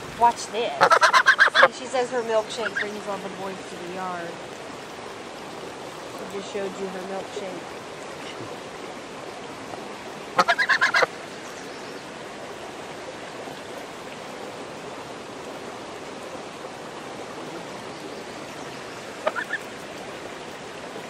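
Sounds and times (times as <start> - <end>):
creek rushing: 0.0 - 21.0
goose honking: 0.8 - 1.7, 10.4 - 11.1, 19.2 - 19.6.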